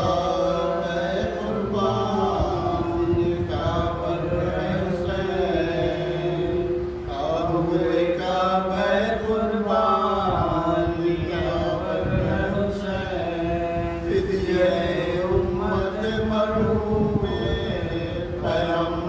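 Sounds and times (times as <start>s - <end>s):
person chanting melodically: 0.0s - 19.0s.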